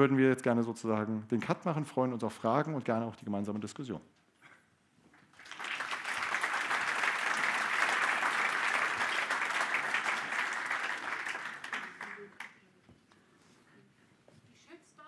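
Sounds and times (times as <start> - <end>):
audience applauding: 5.3 - 12.6.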